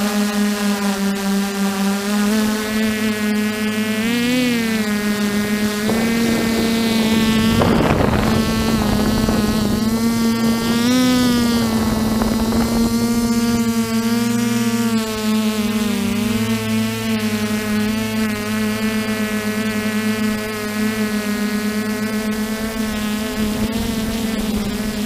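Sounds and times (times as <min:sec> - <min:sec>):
drone propellers buzzing whine: 0:00.0 - 0:25.0
wind noise: 0:02.5 - 0:16.4, 0:22.4 - 0:25.0.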